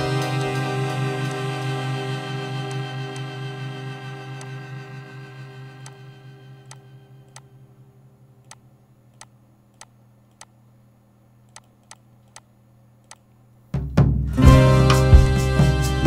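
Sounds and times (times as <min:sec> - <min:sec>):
background music: 0:00.0 - 0:07.2, 0:14.1 - 0:16.0
computer mouse clicking: 0:06.7 - 0:07.5, 0:08.4 - 0:10.6, 0:11.4 - 0:13.4.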